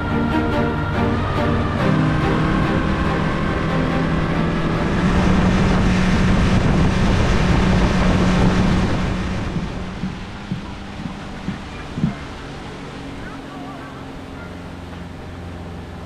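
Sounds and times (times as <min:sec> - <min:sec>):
wind rushing over microphone: 0:00.0 - 0:13.4
boat motor humming: 0:00.0 - 0:16.0.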